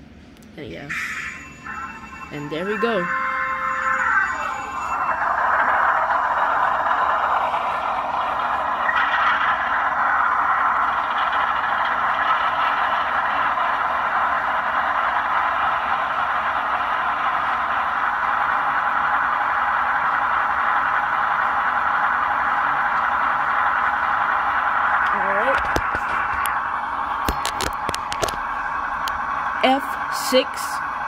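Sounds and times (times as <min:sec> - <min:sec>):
model locomotive diesel engine sound: 0:00.0 - 0:31.0.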